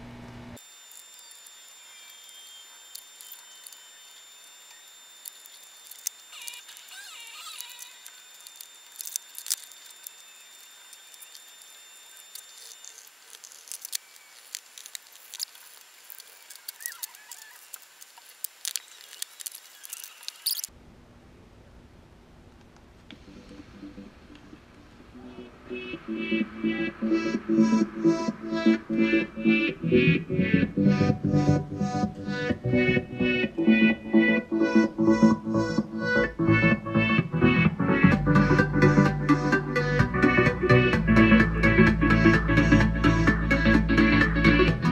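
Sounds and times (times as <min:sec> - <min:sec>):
short high squeaks: 0:00.6 - 0:20.7
thin high whine: 0:00.6 - 0:20.7, 0:23.1 - 0:36.8.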